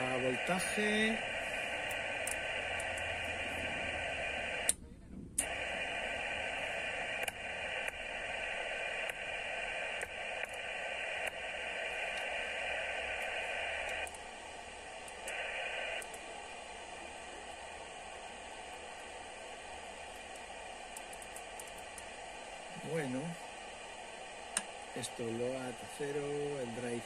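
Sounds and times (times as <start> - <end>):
radio receiver hiss: 0.0 - 27.0
radio control clicks: 0.3 - 4.8, 5.4 - 14.3, 14.9 - 16.3, 20.0 - 22.1, 24.5 - 24.9.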